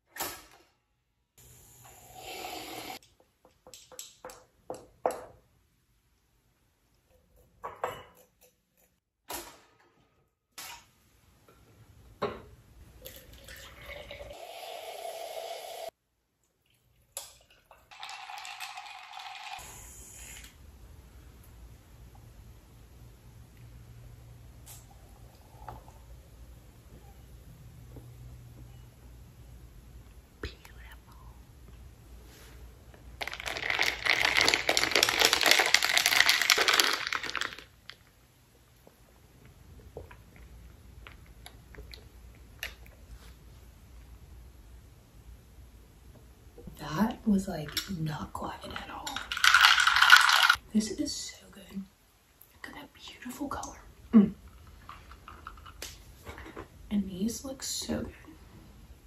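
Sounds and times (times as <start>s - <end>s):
liquid pouring into glass bottle: 13.0s - 14.4s.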